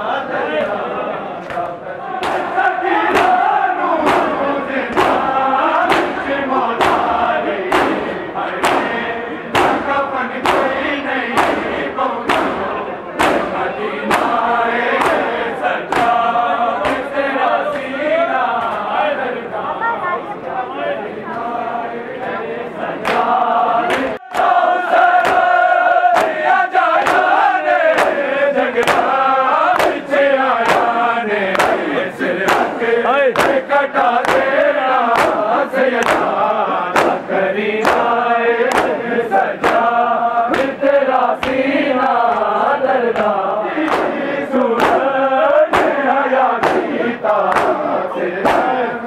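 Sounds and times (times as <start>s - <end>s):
men chanting together: 0.0s - 49.0s
hands slapping chests: 1.4s - 3.4s, 4.0s - 10.8s, 11.4s - 17.1s, 23.9s - 39.0s, 39.6s - 39.9s, 41.4s - 48.8s.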